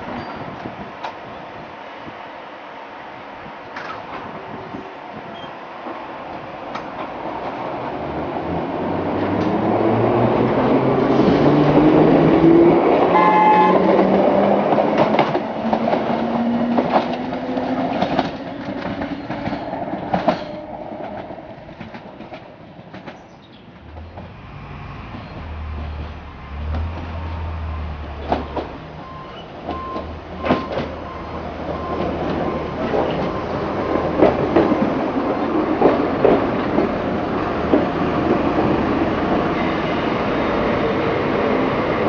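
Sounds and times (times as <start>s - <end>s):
train horn: 13.1s - 14.3s
wheels clicking over rail joints: 13.8s - 24.4s, 28.1s - 38.7s.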